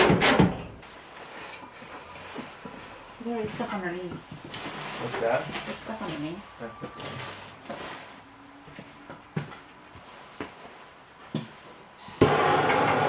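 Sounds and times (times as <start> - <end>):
propane torch hissing: 12.0 - 13.0.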